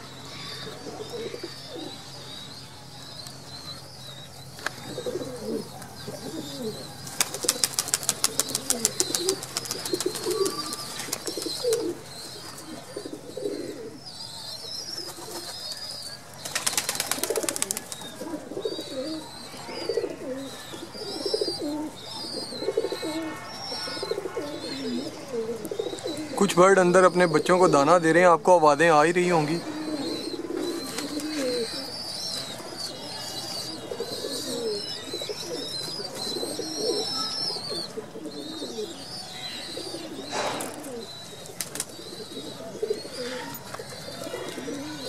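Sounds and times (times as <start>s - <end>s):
pigeons cooing: 0.0s - 45.0s
wings fluttering: 7.0s - 12.0s, 16.4s - 18.3s, 30.7s - 31.8s, 41.6s - 42.0s.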